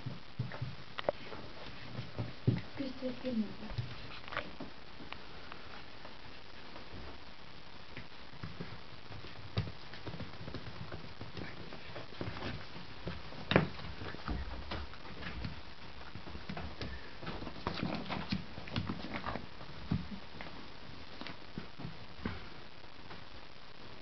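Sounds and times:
puppy claws scrabbling on floor: 8.0 - 22.4.

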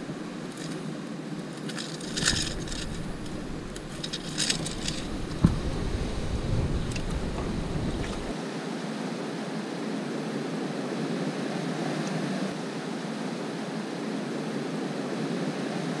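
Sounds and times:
wind on microphone: 2.0 - 8.4.

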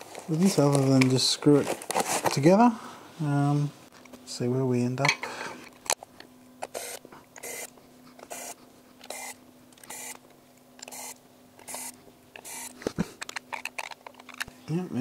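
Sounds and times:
electric screwdriver motor hum: 6.6 - 7.7, 8.3 - 10.2, 10.8 - 12.7.

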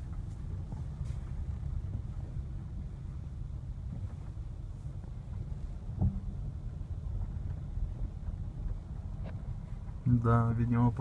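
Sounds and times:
car engine and tyres on slush: 0.0 - 11.0.

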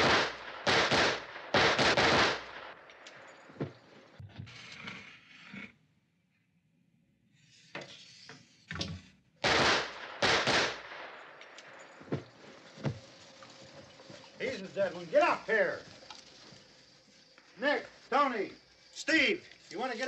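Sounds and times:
sharp gunshot cracks: 0.0 - 3.1, 9.4 - 11.6
gunshots with echoing tail: 0.0 - 3.3, 9.4 - 11.8.

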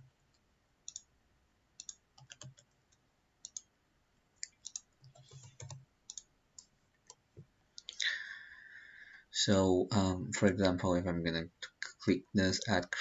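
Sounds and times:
keyboard typing: 1.8 - 2.8, 4.4 - 7.2
mouse clicks: 1.8 - 3.7, 4.4 - 7.2.

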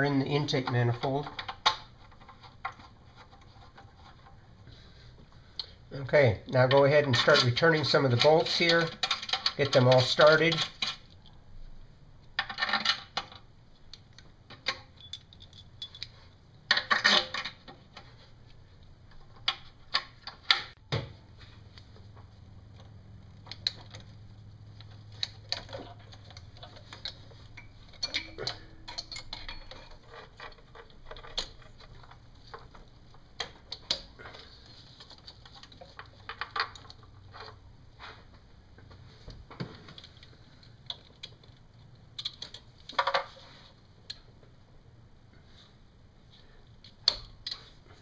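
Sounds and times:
metal bolts clinking: 14.6 - 17.6, 24.9 - 34.2.

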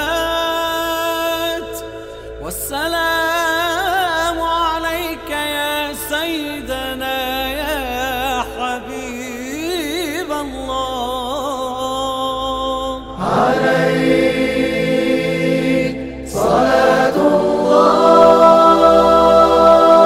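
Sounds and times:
group of voices chanting: 13.2 - 20.0.

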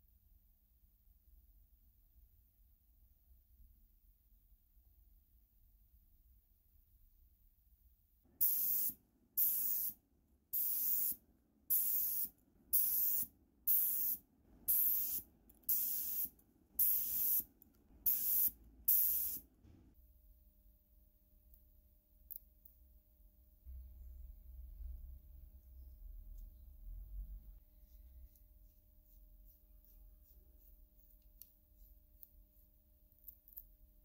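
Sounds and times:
spray paint hissing from aerosol can: 8.4 - 10.0, 10.6 - 19.4.

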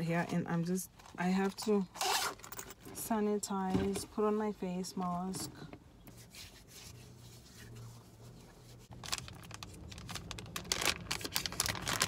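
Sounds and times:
plastic packet crinkling and tearing: 8.9 - 12.0.

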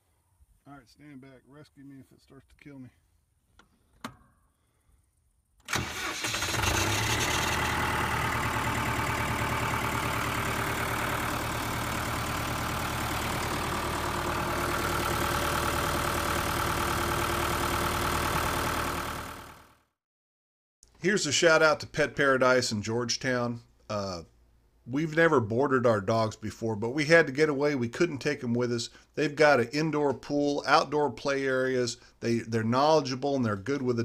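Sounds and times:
diesel engine starting and idling: 5.7 - 19.8.

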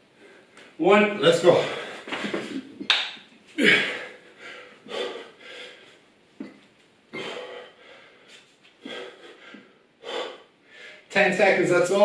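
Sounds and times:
man breathing heavily: 1.6 - 2.8, 3.5 - 6.1, 7.1 - 11.1.

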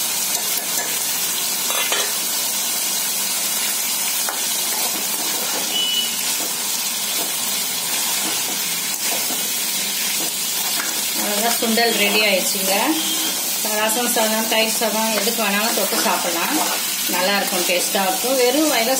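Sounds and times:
food sizzling in hot oil: 0.0 - 18.9
steel spoon scraping: 15.2 - 17.0.

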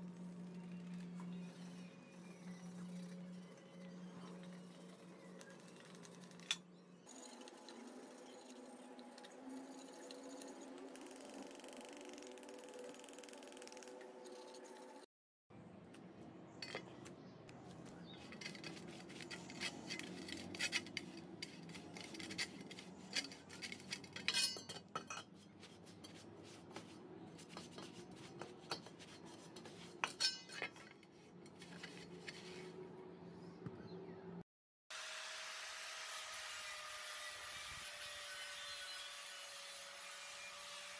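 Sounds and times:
cloth rubbing on metal blade: 18.1 - 32.8.

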